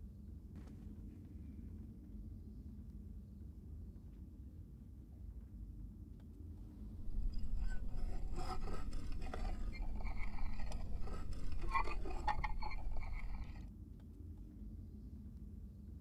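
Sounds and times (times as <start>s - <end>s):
rough uneven scraping: 6.9s - 13.6s.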